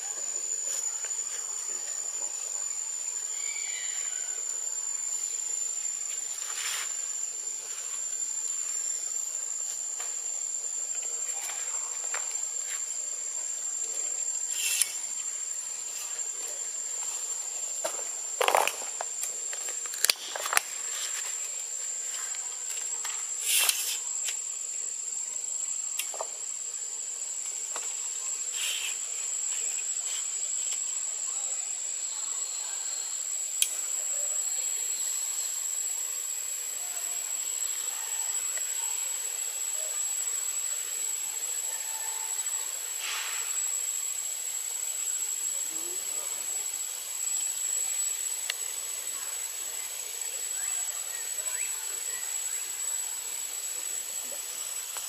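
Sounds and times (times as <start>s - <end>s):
insects droning: 0.0s - 55.0s.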